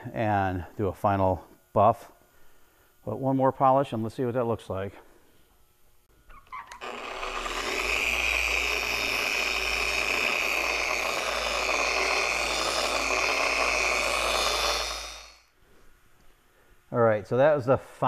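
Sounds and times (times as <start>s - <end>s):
orbital polisher whirring: 6.4s - 15.5s.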